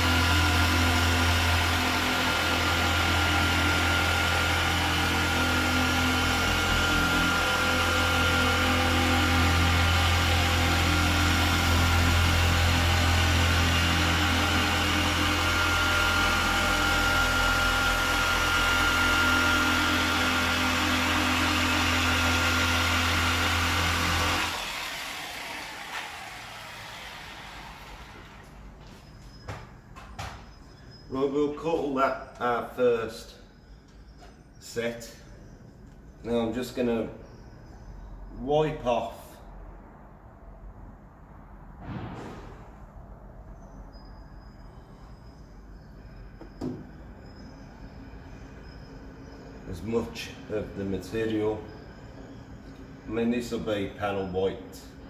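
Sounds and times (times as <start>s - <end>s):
electric polisher running: 0.0s - 28.6s.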